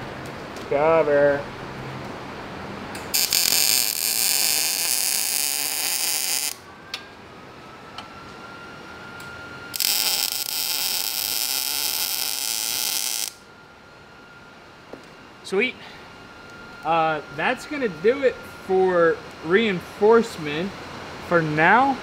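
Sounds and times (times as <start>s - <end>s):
arc welding crackling hiss: 3.1s - 6.6s, 9.7s - 13.5s.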